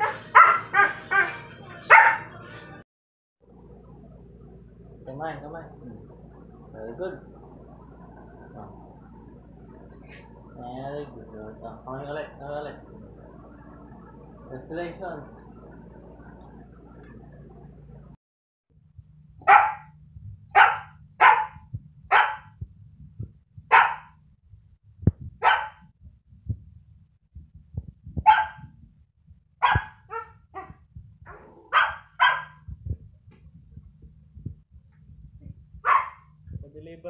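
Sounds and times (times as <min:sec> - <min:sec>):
puppy barking: 0:00.0 - 0:02.4, 0:19.4 - 0:19.9, 0:20.6 - 0:22.6, 0:23.7 - 0:24.2, 0:25.4 - 0:25.8, 0:28.2 - 0:28.7, 0:29.6 - 0:32.6, 0:35.8 - 0:36.3.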